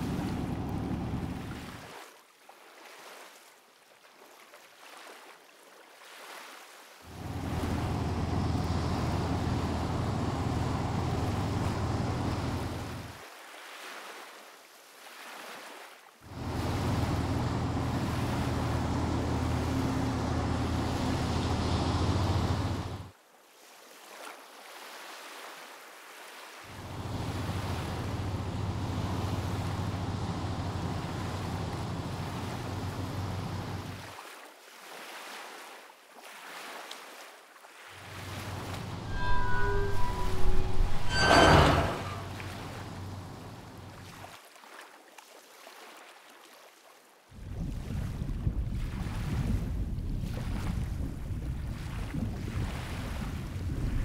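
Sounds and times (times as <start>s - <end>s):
rushing wind and waves: 5.8s - 39.1s, 47.3s - 54.0s.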